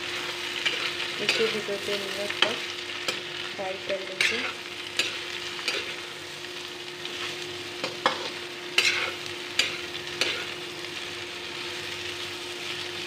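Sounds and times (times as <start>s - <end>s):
vegetables sizzling in hot oil: 0.0s - 13.0s
metal spatula scraping pan: 4.1s - 6.1s, 8.0s - 10.6s.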